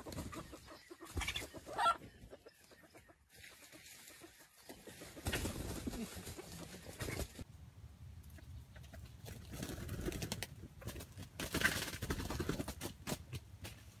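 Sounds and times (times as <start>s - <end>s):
rooster clucking and calling: 0.0s - 3.1s.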